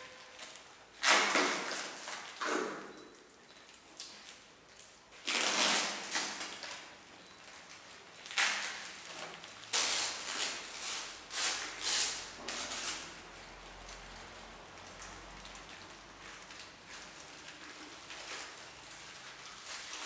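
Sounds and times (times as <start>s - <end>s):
paper strips tearing: 0.0s - 2.7s, 5.2s - 6.9s, 8.3s - 13.8s.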